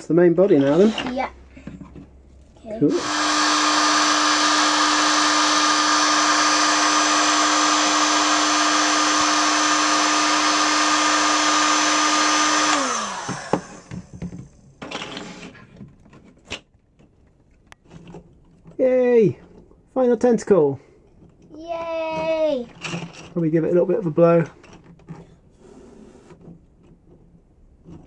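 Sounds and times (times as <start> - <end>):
heat gun fan hum: 2.8 - 14.4.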